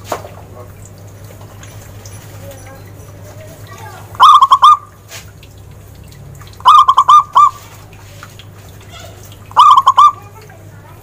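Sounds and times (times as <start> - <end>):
dove cooing: 4.2 - 4.9, 6.6 - 7.8, 8.9 - 10.4.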